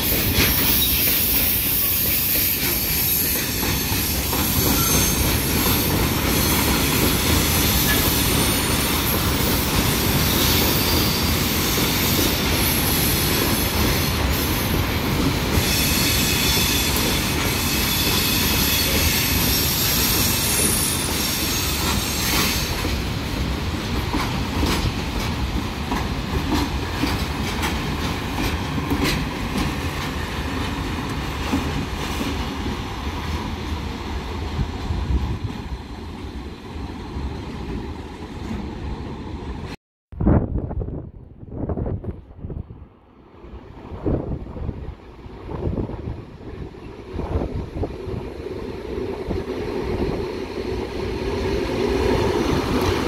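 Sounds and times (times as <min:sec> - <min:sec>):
train wheels clicking: 0:00.0 - 0:33.9
freight train rolling past: 0:00.0 - 0:53.0.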